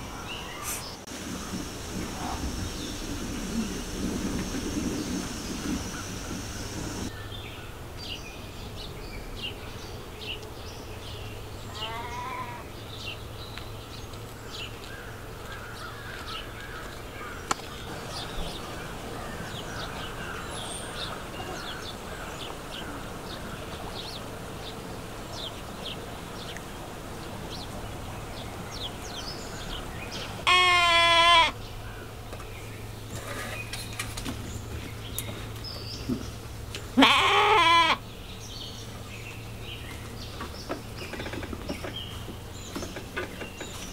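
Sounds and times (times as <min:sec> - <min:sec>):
small birds chirping: 0:00.0 - 0:43.9
lamb bleating: 0:11.7 - 0:12.6, 0:30.4 - 0:31.6, 0:37.0 - 0:38.0.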